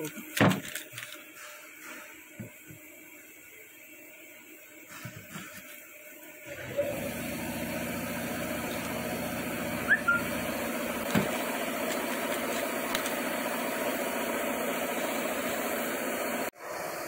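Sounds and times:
machine humming: 6.4s - 17.0s
short rising squeak: 9.8s - 10.3s.

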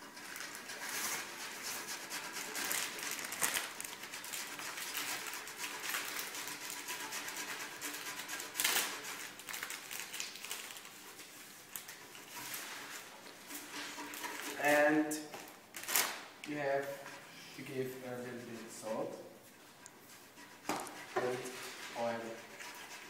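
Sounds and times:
food scraping on a box grater: 0.0s - 14.7s, 20.3s - 23.0s
plastic packet rustling: 2.4s - 6.7s, 8.4s - 14.7s, 15.3s - 16.4s.

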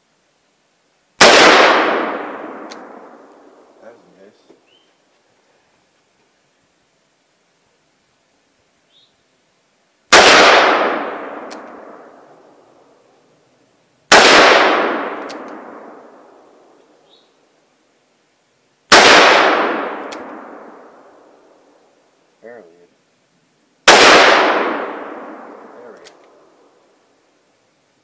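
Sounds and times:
faint sharp tick: 2.6s - 2.9s, 11.4s - 11.8s, 20.0s - 20.4s.

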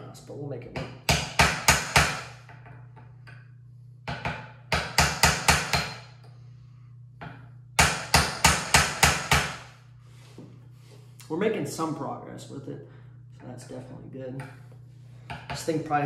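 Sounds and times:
hammer tapping steel punch: 0.7s - 6.2s, 7.2s - 9.6s.

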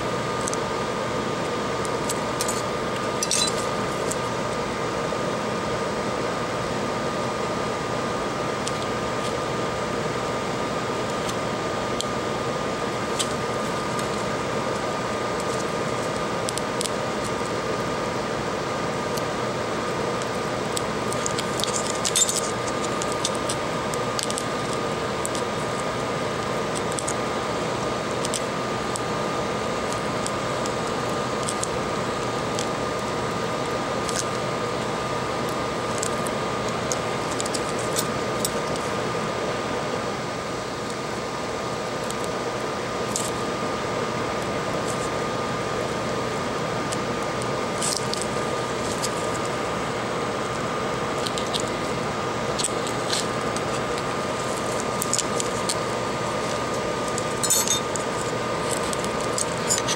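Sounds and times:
fan-like machine hum: 0.0s - 59.9s
high whine: 0.0s - 59.9s.

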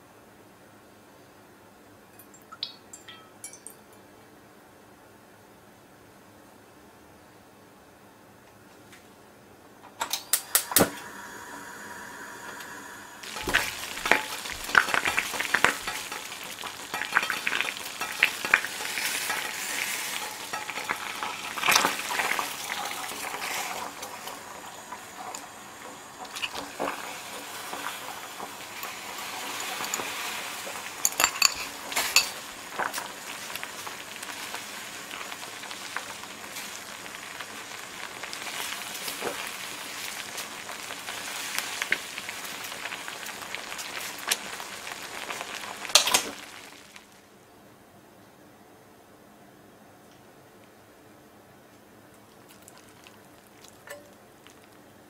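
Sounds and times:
utensils clinking on metal pan: 2.9s - 3.9s, 13.2s - 23.0s, 28.7s - 32.5s
broth bubbling in a pan: 10.6s - 47.3s, 52.2s - 55.0s.

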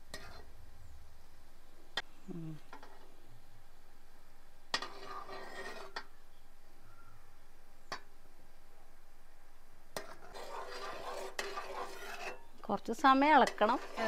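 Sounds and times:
spoon stirring and scraping pan: 0.0s - 0.6s, 2.7s - 3.2s, 4.7s - 6.2s, 9.9s - 14.0s.

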